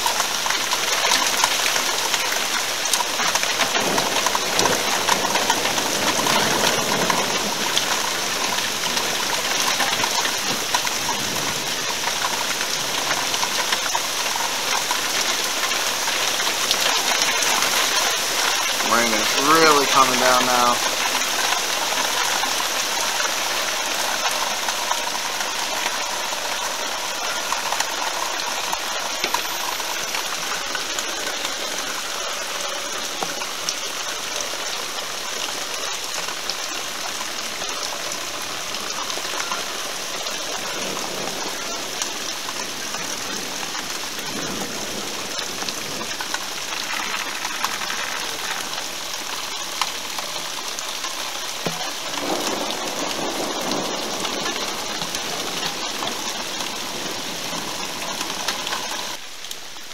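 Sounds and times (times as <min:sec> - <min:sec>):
heavy rain hissing: 0:00.0 - 0:59.9.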